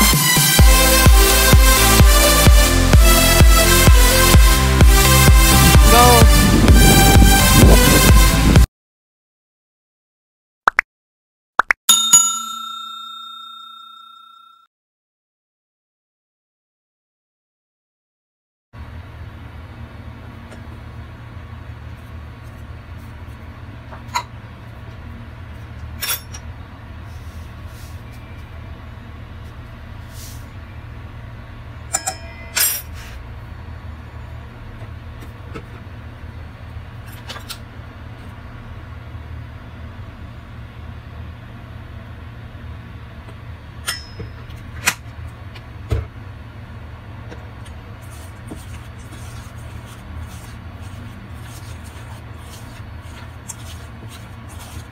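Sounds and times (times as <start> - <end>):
steady low hum: 18.8 - 54.9.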